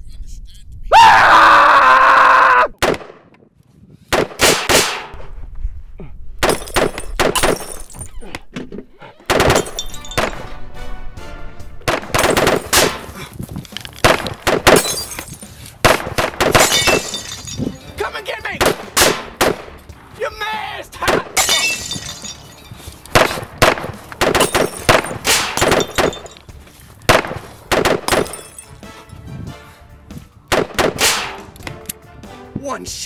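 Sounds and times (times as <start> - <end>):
man screaming: 0.9 - 2.8
pistol gunshots: 2.8 - 3.3, 4.1 - 5.2, 6.4 - 7.8, 9.3 - 10.5, 11.8 - 13.1, 14.0 - 15.1, 15.8 - 17.1, 18.6 - 19.8, 23.1 - 26.3, 27.1 - 28.5, 30.5 - 31.6
background music: 9.1 - 33.0.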